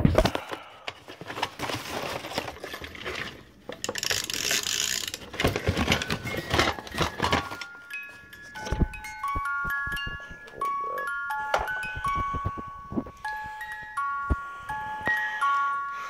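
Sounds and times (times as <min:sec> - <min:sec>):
door chime clattering and clicking: 0:05.9 - 0:15.4
chime melody notes: 0:07.6 - 0:16.0.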